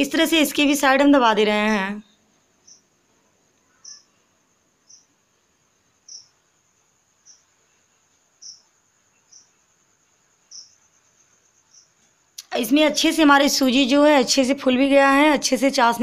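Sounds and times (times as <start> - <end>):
cricket chirp: 0.0 - 16.0
faint cricket trilling: 0.0 - 16.0.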